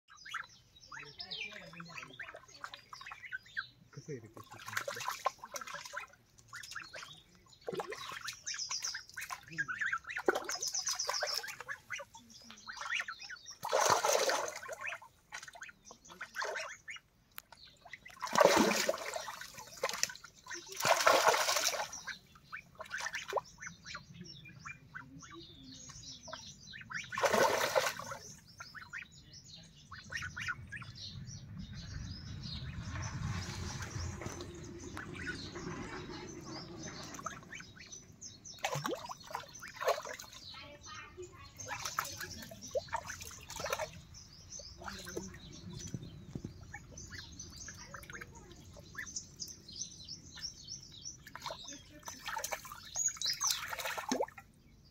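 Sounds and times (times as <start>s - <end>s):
ducks quacking: 0.1s - 17.1s, 17.9s - 29.2s, 29.8s - 31.0s, 34.2s - 45.9s
ducks splashing in water: 0.2s - 29.2s, 29.8s - 31.1s, 32.4s - 54.6s.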